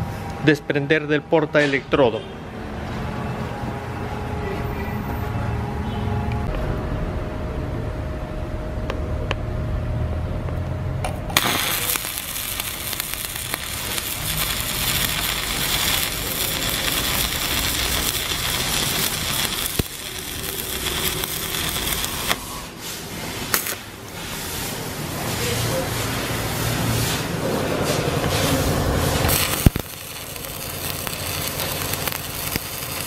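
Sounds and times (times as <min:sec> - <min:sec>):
low hum: 0:05.7 - 0:22.6
welding arc crackling hiss: 0:11.4 - 0:33.0.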